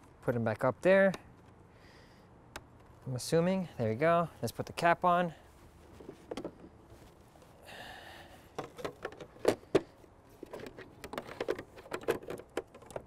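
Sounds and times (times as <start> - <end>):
plastic parts knocking and clicking: 6.0 - 6.7, 8.5 - 13.0.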